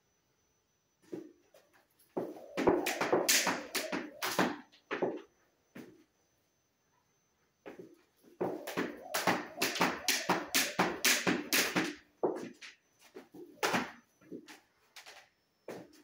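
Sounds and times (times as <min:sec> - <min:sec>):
jump rope slapping: 0:02.2 - 0:04.6, 0:08.4 - 0:12.0.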